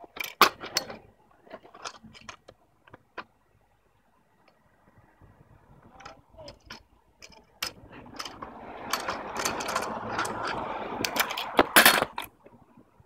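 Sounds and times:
scooter clattering on ground: 6.0s - 12.3s
scooter wheels rolling on pavement: 7.3s - 12.5s.

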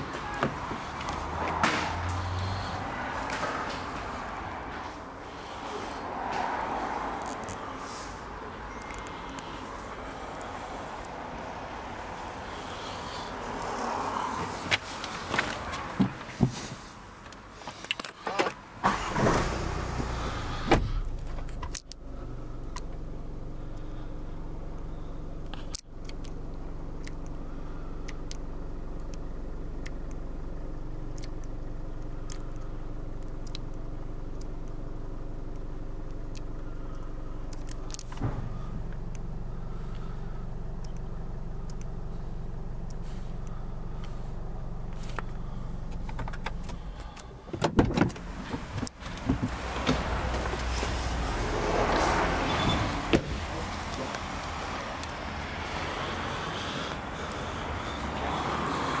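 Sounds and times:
car engine idling: 0.0s - 59.0s
clunks and knocks in car: 20.7s - 21.4s, 38.2s - 38.6s, 47.5s - 50.7s, 52.7s - 53.4s.

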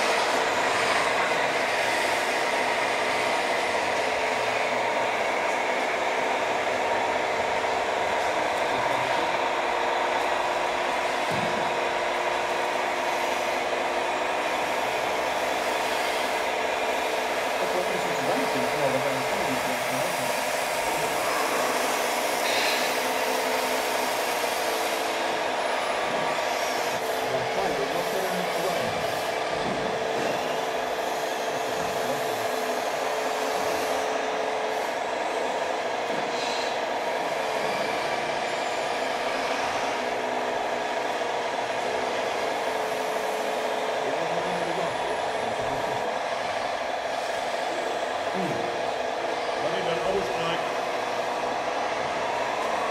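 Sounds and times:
hydraulics whining: 0.0s - 52.9s.

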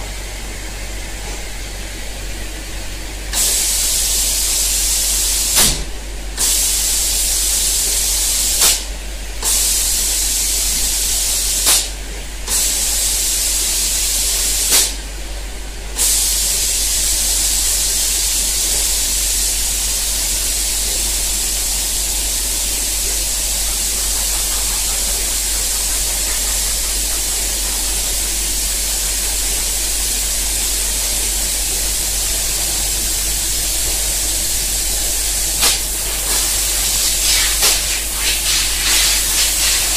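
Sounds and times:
spray guns hissing: 20.8s - 39.9s.

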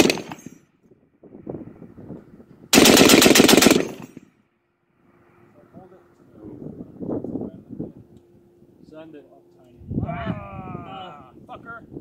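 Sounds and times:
machine gun firing burst: 0.0s - 0.5s, 2.7s - 4.2s
gunfire echo: 2.8s - 4.2s.

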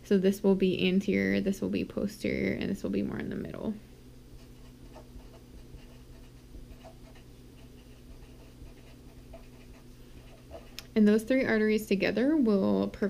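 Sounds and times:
marker squeaking on paper: 4.4s - 10.8s.

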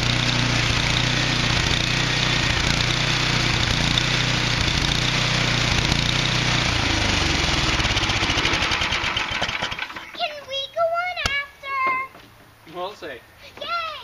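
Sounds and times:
small gasoline engine running: 0.0s - 10.2s.

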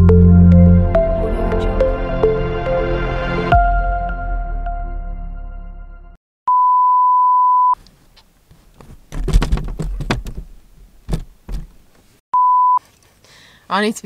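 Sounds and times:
electronic beep: 6.5s - 7.8s, 12.4s - 12.8s
sharp knocks: 9.1s - 10.5s.

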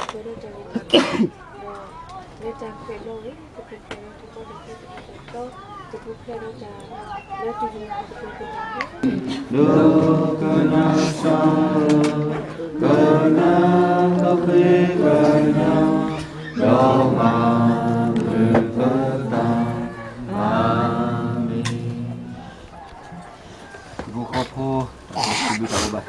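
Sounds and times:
group of people singing: 9.0s - 22.7s.

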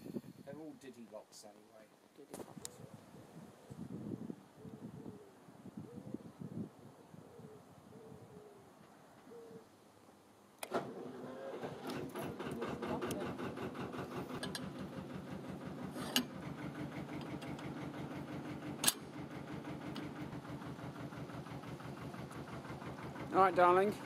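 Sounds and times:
boat engine starting and idling: 10.6s - 24.0s.

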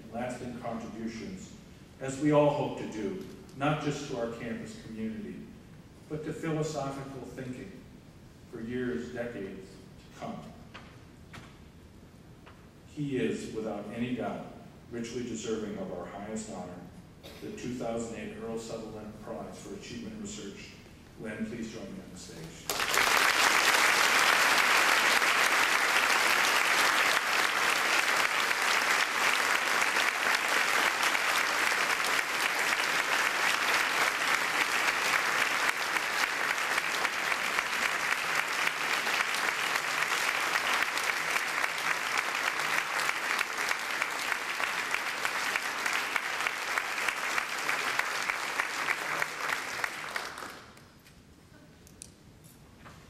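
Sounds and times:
audience applauding: 22.7s - 50.8s.

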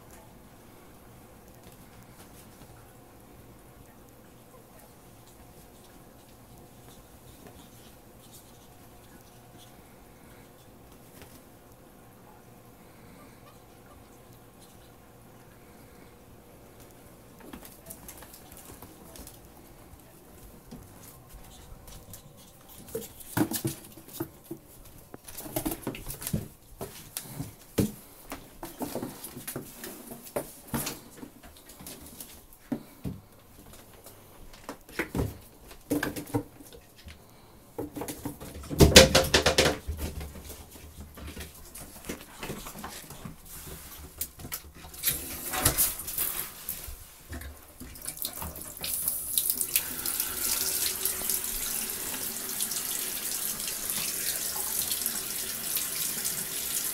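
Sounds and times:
bathtub faucet running: 47.8s - 56.9s.

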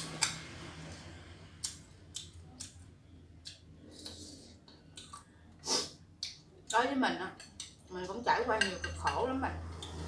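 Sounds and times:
person eating clicks and smacks: 1.6s - 5.4s, 6.2s - 6.8s, 7.5s - 7.8s.

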